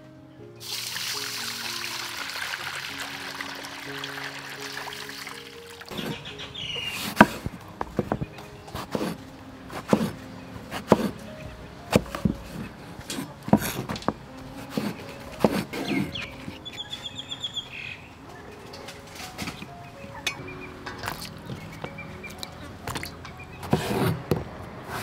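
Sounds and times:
birds chirping: 1.3 - 24.1
cleaver chopping on wooden board: 7.0 - 9.2, 9.8 - 11.2, 11.9 - 16.0.

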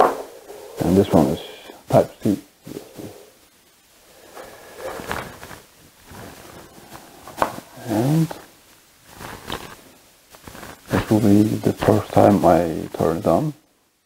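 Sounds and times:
cable and tablet handling noise: 4.2 - 7.7, 9.1 - 10.9.

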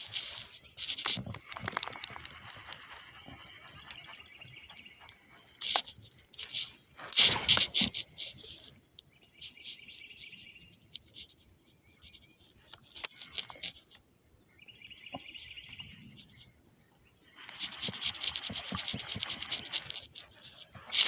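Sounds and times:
insects buzzing: 0.0 - 21.0
fishing reel whirring and clicking: 17.4 - 21.0.

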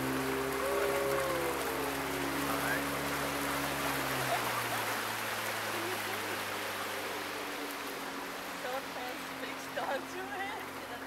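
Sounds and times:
low engine hum: 0.0 - 11.0
water rushing: 0.0 - 11.0.

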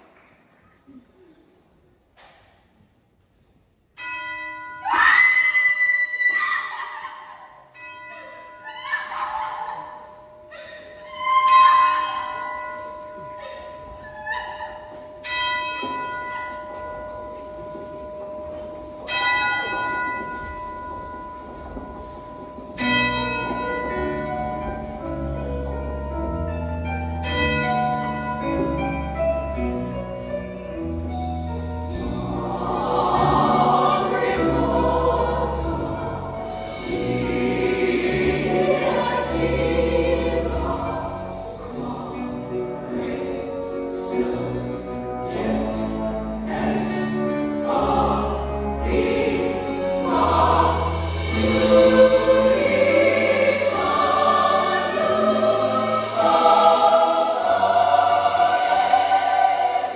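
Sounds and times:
tolling bell tones: 7.5 - 30.0
choir singing: 31.9 - 59.9.

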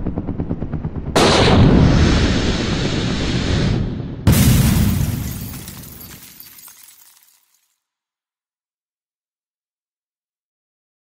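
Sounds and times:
heavy explosion-like booms: 3.8 - 6.1
bright crash: 4.3 - 7.1.

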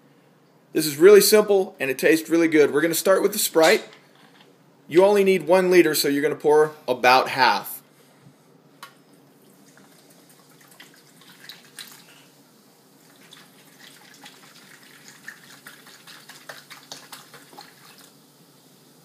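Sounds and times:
soda fizzing and crackling: 9.2 - 19.0
soda pouring and splashing into bowl: 9.4 - 19.0.

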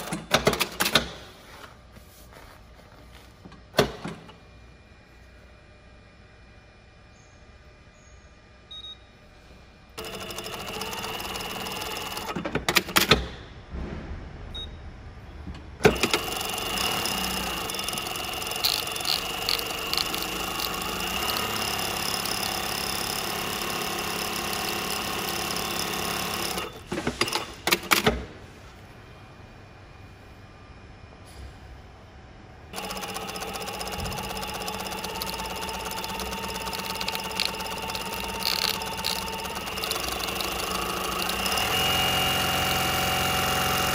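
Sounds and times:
sewing machine sewing: 10.0 - 12.8, 15.9 - 27.9, 32.8 - 43.9
sewing machine stopping clicks: 15.9 - 28.0, 32.8 - 43.9.

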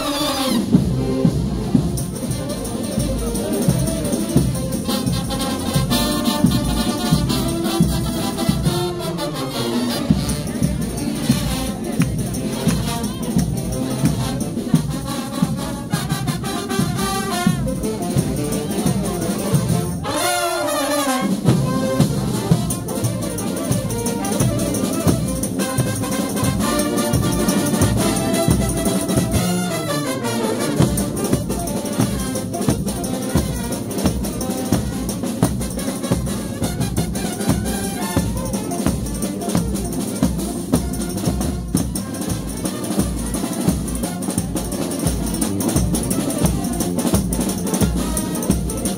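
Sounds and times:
trumpets and trombones: 0.0 - 48.9
fast drum beat: 21.2 - 29.8, 30.4 - 48.9.

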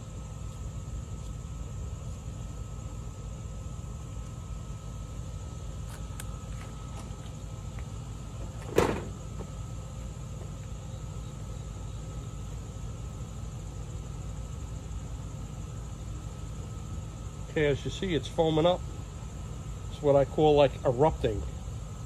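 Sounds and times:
faint high whine: 0.0 - 22.0
low outdoor rumble: 0.0 - 22.0.

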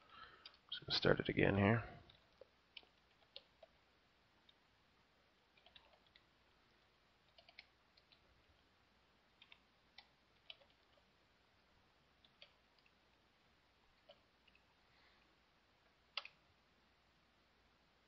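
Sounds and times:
computer keyboard keystrokes: 5.6 - 6.2, 7.3 - 8.2, 10.4 - 11.0.

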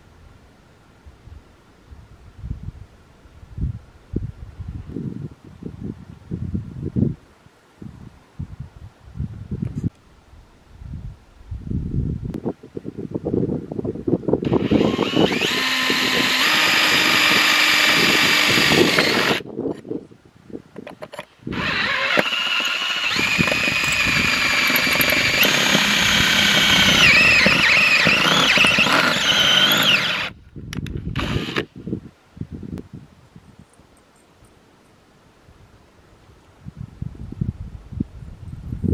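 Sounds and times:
drill bit grinding on metal: 14.4 - 19.4, 21.0 - 30.4, 31.1 - 31.7
drill motor whine: 14.4 - 19.4, 21.5 - 30.4, 31.1 - 31.7.

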